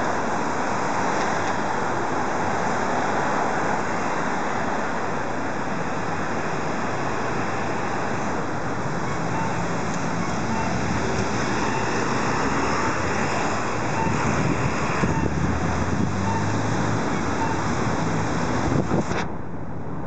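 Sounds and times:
street traffic roar: 0.0s - 20.0s.

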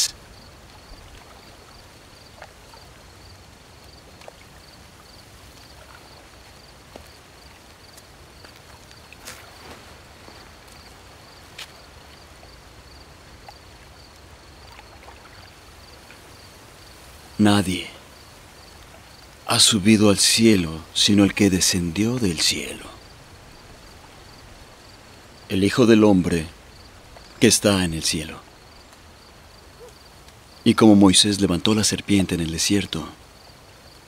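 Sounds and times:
cricket chirping: 0.0s - 34.0s
soft steady hiss: 0.0s - 34.0s
faint clicks: 28.8s - 29.1s, 29.8s - 30.4s.

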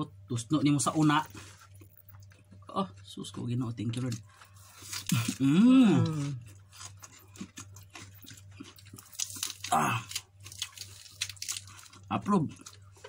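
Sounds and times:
chewing raw leafy vegetables: 0.9s - 13.0s
person's wordless vocal sound: 5.4s - 6.4s.

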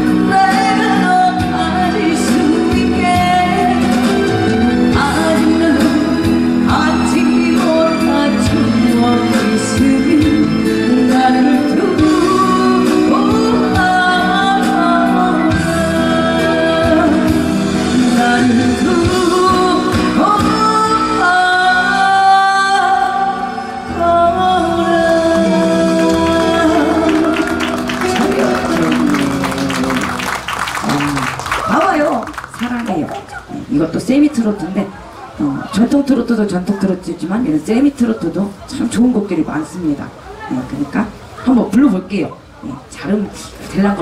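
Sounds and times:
woman singing slow song: 0.0s - 30.1s
instrumental accompaniment: 23.5s - 31.6s.

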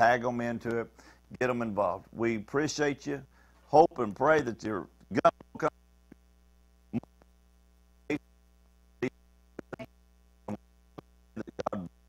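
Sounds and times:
man speaking: 0.0s - 5.8s, 11.4s - 12.0s
low electrical hum: 0.0s - 12.0s.

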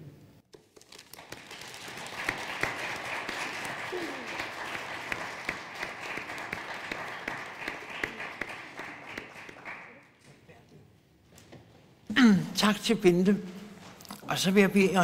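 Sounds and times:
audience applauding: 0.8s - 10.2s.

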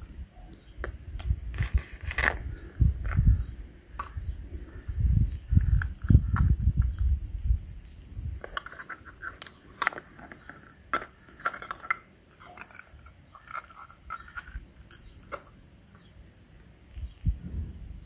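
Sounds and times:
plastic toy pieces clicking and knocking: 8.4s - 15.6s.

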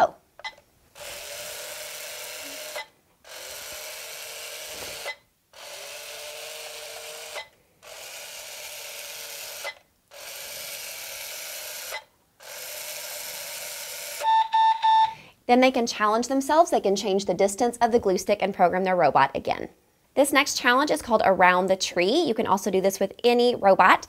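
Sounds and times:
robot drive motors whirring: 0.9s - 14.2s.

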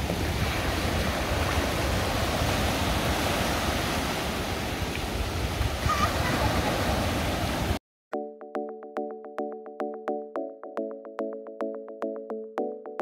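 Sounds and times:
small waves breaking: 0.0s - 7.8s
wind on microphone: 0.0s - 7.8s.

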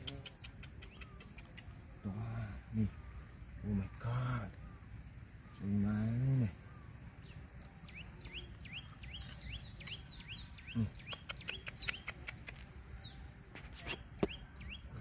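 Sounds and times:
bird chirping: 0.0s - 15.0s
hands rustling grass and wicker: 4.1s - 10.5s.

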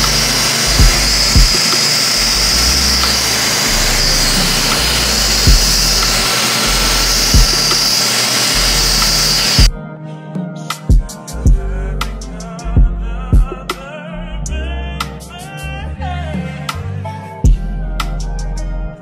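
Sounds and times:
machine hissing with high whine: 0.0s - 9.7s
short low thumps: 0.8s - 1.6s, 3.8s - 6.2s.

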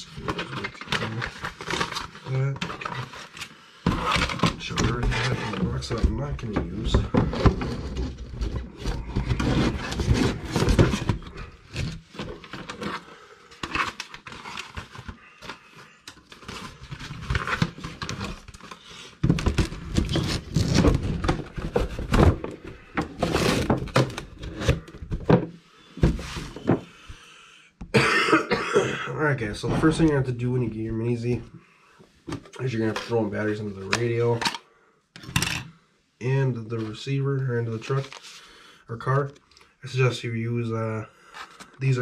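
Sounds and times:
packaging rustling: 0.1s - 25.2s.

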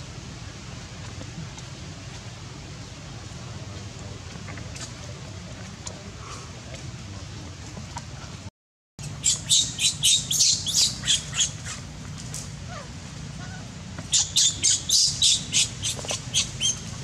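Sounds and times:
bird squawking: 9.2s - 11.8s, 12.7s - 16.9s.

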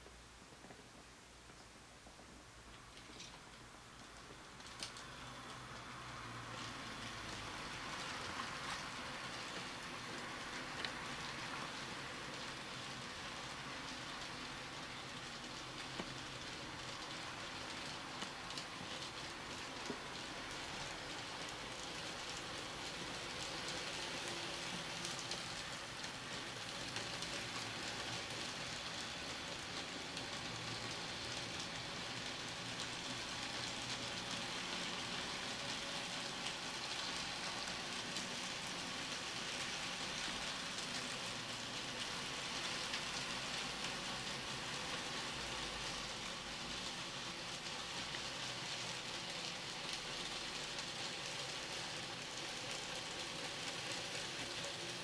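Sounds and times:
model train wheels rolling: 2.9s - 55.0s.

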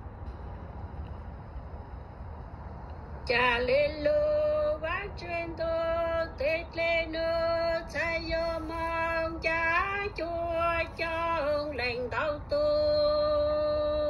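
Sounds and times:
woman singing unaccompanied: 3.2s - 14.0s.

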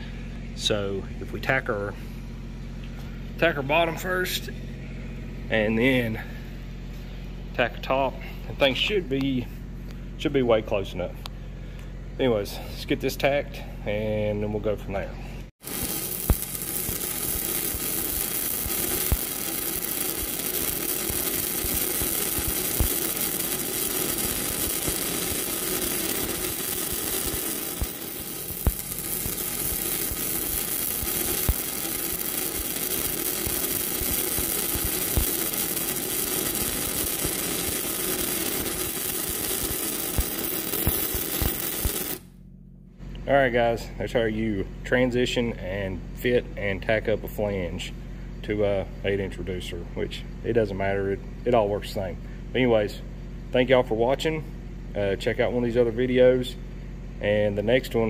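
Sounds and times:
welding arc crackling and popping: 15.6s - 42.4s.

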